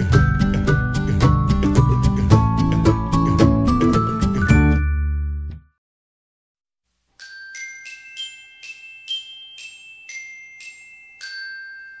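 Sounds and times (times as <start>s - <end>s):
bell-like mallet notes: 4.1s - 5.5s, 7.2s - 12.0s.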